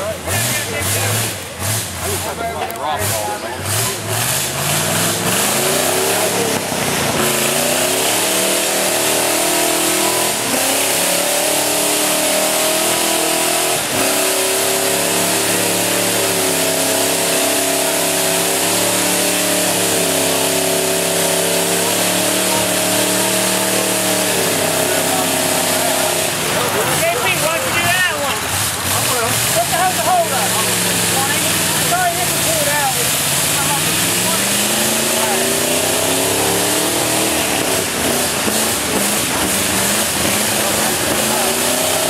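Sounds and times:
truck engine revving: 0:00.0 - 0:42.0.

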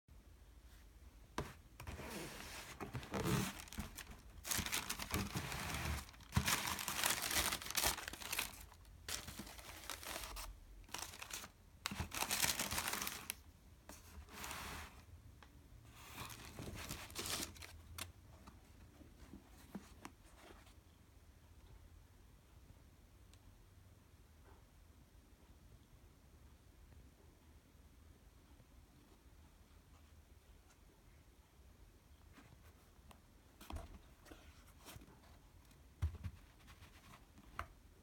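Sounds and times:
tissue paper rustling: 0:01.4 - 0:15.1, 0:15.9 - 0:18.0.

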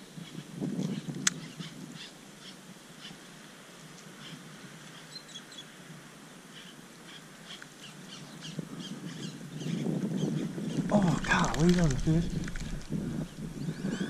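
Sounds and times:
wind rumble on microphone: 0:00.0 - 0:03.0, 0:07.3 - 0:14.0.

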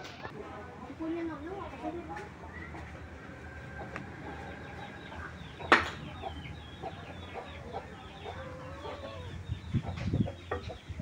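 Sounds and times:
chickens clucking: 0:01.4 - 0:11.0.

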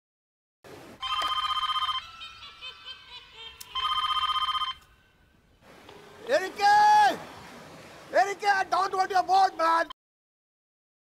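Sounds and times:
telephone ringing: 0:01.0 - 0:05.1.

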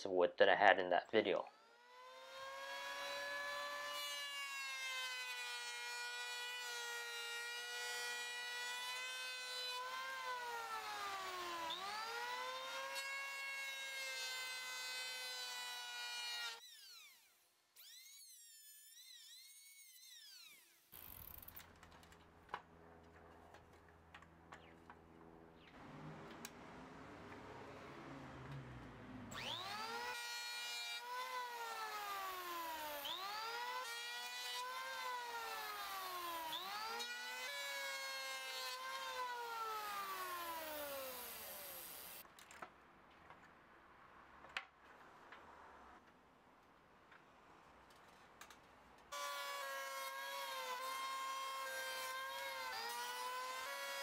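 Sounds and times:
electric hand planer whining: 0:01.5 - 0:20.8, 0:29.3 - 0:42.2, 0:49.2 - 0:54.0.

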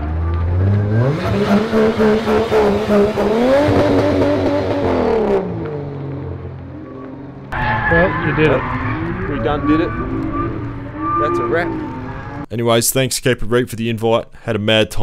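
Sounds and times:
car engine revving: 0:00.0 - 0:12.5.

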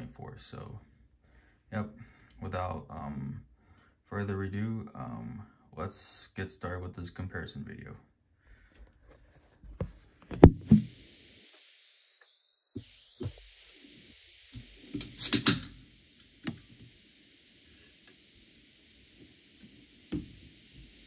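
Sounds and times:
gas hissing: 0:10.2 - 0:21.0
carbonation fizz: 0:10.6 - 0:21.0.

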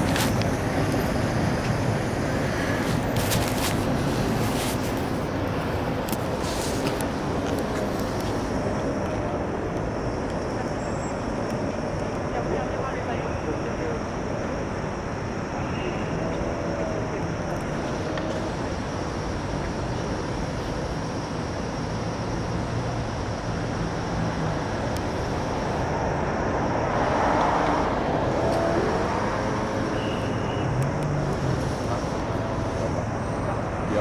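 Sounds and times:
city traffic rumble: 0:00.0 - 0:34.0
vehicle passing: 0:25.6 - 0:34.0.

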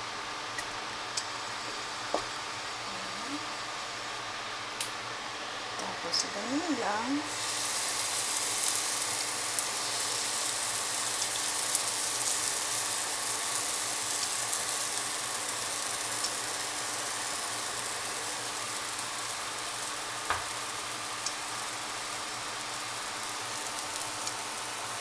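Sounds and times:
batter sizzling in hot oil: 0:05.4 - 0:25.0.

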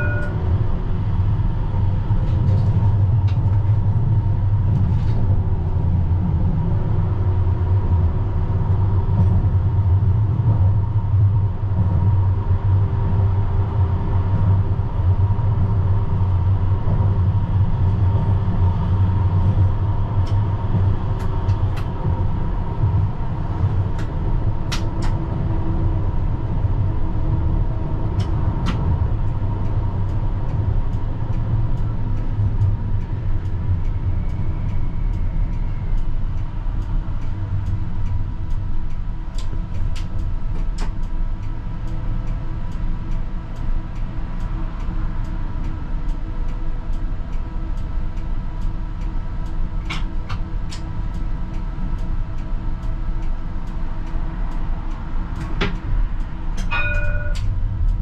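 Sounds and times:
thin steady whine: 0:00.0 - 0:00.8, 0:41.1 - 0:58.0
tram wheels rumbling on rail: 0:00.0 - 0:58.0.

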